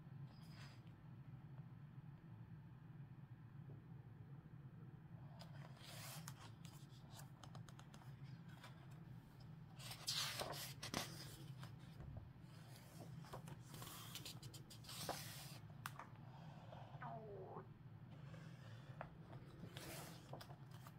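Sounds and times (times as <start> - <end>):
low steady hum: 0.0 - 20.9
book pages rustling: 5.4 - 16.8, 18.1 - 20.9.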